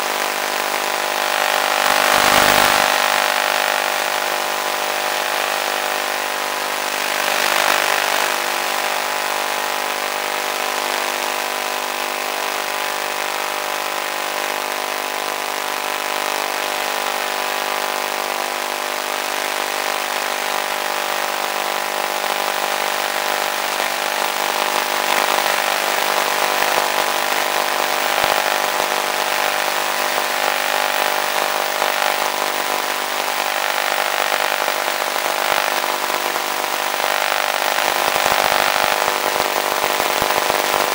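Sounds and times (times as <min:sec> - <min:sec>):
electric motor whine: 0:00.0 - 0:09.2.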